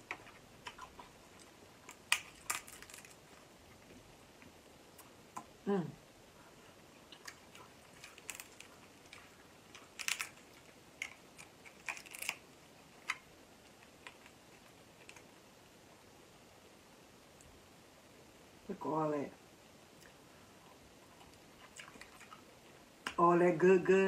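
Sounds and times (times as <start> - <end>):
crab shell cracking: 0.0 - 3.5, 7.2 - 15.3
quiet chewing: 0.0 - 5.6, 6.3 - 15.5, 19.9 - 23.2.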